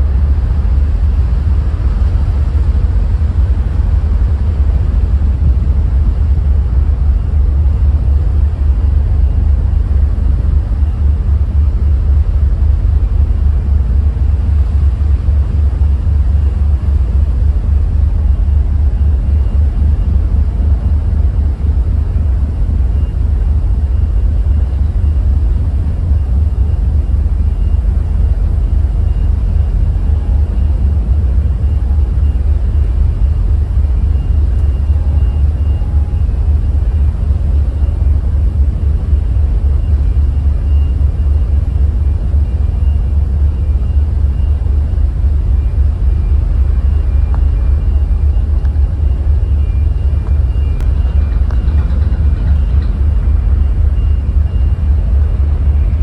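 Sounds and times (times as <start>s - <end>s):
ship engines rumbling: 0.0s - 56.0s.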